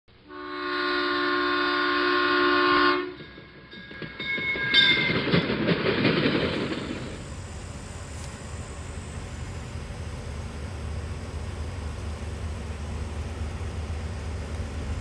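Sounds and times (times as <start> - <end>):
locomotive air horn: 0.2 - 3.2
train rumbling and clattering: 2.3 - 15.0.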